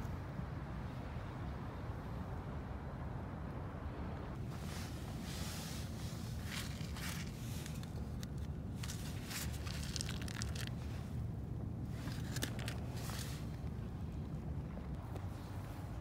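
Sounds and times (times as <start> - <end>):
low wind rumble: 0.0 - 16.0
fingers rustling through gritty packing: 5.8 - 11.1, 11.9 - 13.6.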